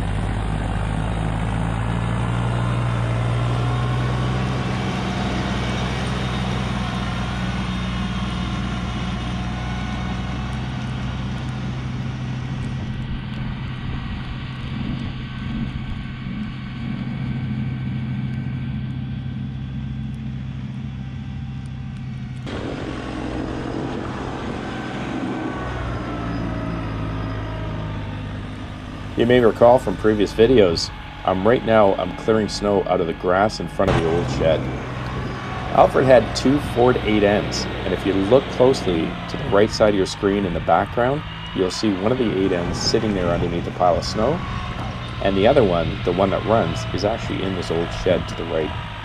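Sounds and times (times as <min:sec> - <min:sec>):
tractor diesel engine running: 0:00.0 - 0:49.0
snowblower throwing snow: 0:22.4 - 0:25.9.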